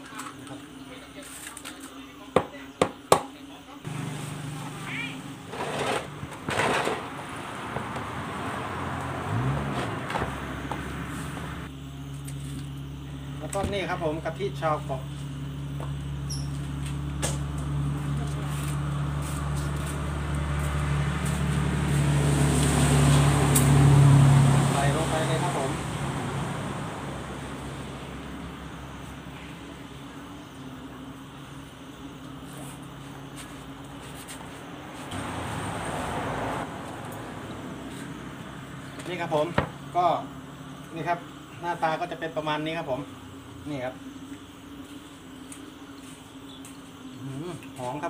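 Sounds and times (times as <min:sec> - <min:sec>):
steady low hum: 0:03.3 - 0:35.5.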